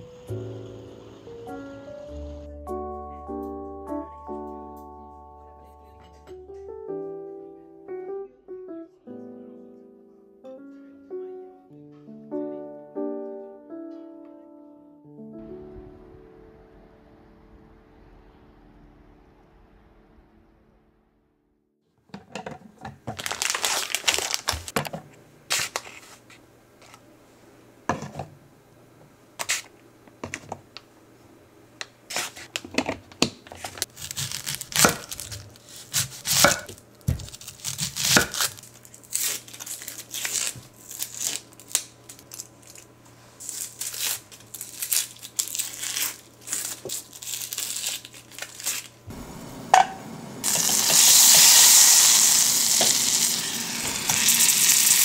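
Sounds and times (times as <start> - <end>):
plastic bag crinkling and tearing: 23.0 - 24.8, 33.6 - 49.1, 50.4 - 55.0
butter sizzling: 43.5 - 55.0.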